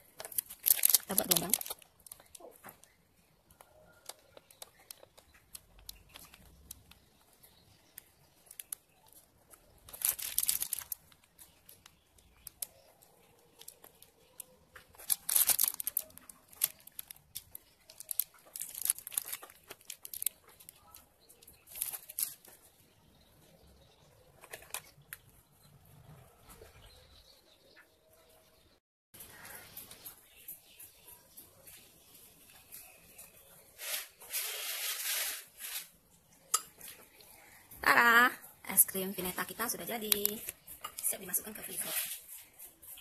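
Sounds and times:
plastic piping bag crinkling: 0.0 - 3.4, 4.0 - 23.2, 39.1 - 43.0
small clicks and rustles: 0.2 - 23.2, 24.3 - 25.4.

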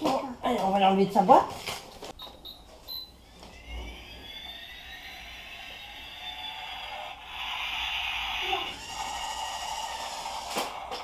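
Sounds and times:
small motor whirring: 3.4 - 11.0.

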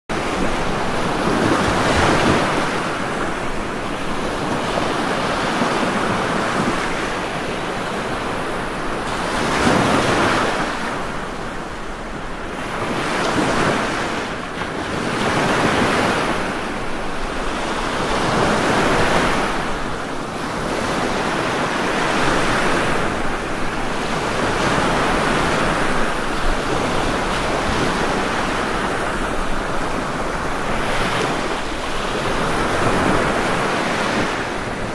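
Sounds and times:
waves breaking: 0.1 - 34.9.

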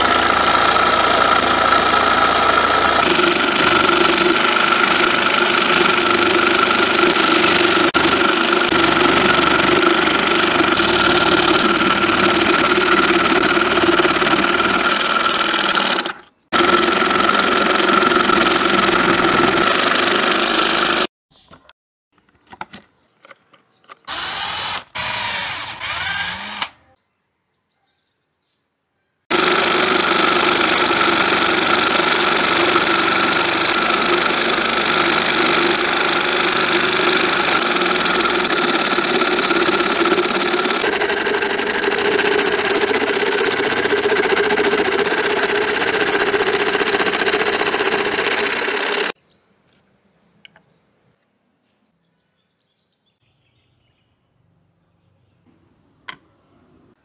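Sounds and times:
scroll saw motor buzzing: 0.0 - 21.1, 24.0 - 26.9, 29.3 - 49.2.

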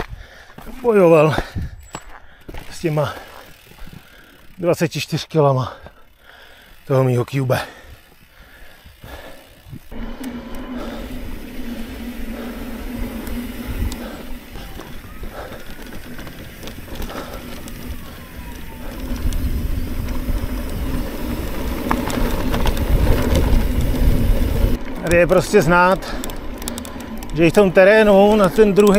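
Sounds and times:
bike tyres rolling on trail: 0.0 - 28.9
bike rattling and knocking: 6.5 - 28.9
electric motor hum: 9.0 - 25.0
wind rumble on microphone: 9.6 - 24.9.

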